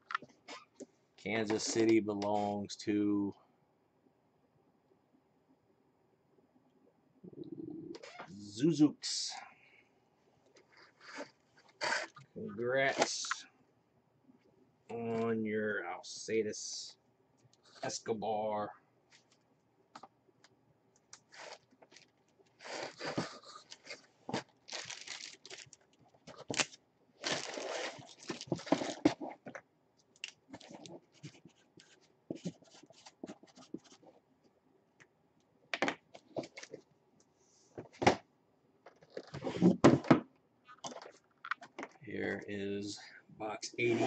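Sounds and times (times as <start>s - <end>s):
plastic and cardboard rustling: 21.2s - 29.6s, 30.5s - 34.2s.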